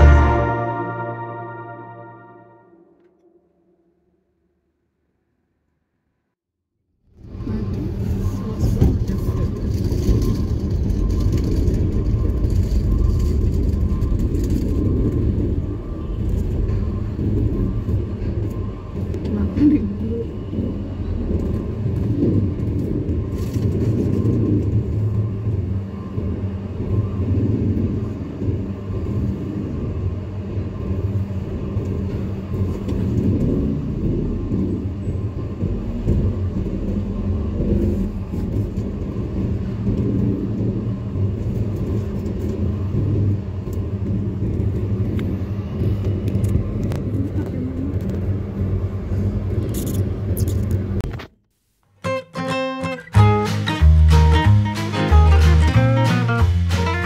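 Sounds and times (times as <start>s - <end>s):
constant hum: 7.2s - 51.3s.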